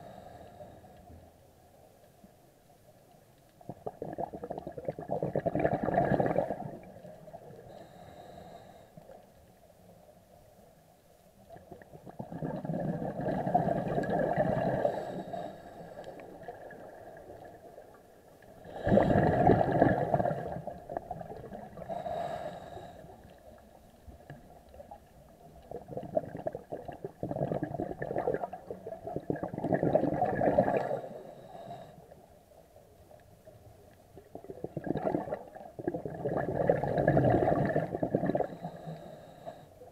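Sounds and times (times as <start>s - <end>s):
air bubbling from scuba regulator: 3.7s - 8.3s, 11.6s - 15.5s, 18.6s - 22.8s, 25.6s - 31.6s, 34.2s - 39.4s.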